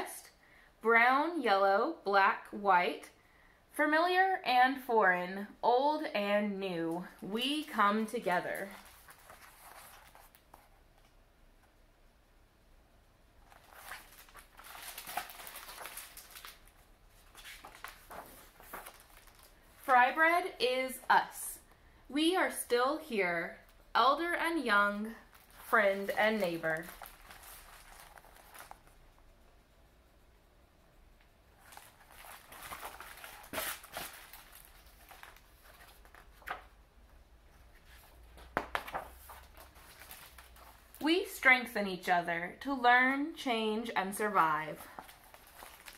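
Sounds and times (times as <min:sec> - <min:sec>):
book pages turning: 0:07.0 - 0:11.1, 0:13.4 - 0:20.1, 0:25.2 - 0:29.0, 0:31.6 - 0:36.7, 0:37.5 - 0:41.0, 0:44.3 - 0:45.9.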